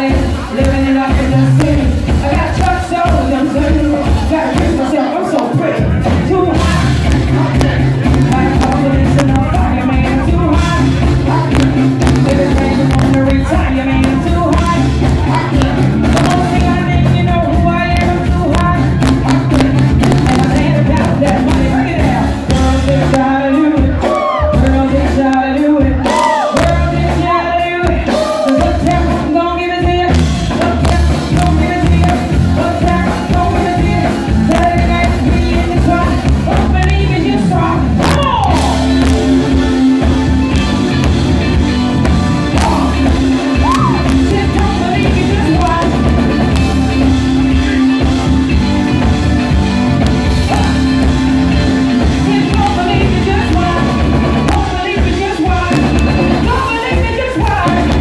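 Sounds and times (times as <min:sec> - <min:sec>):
live rock band playing: 0:00.0 - 0:58.0
person singing: 0:00.0 - 0:58.0
crowd shouting: 0:24.0 - 0:24.6, 0:26.0 - 0:26.6.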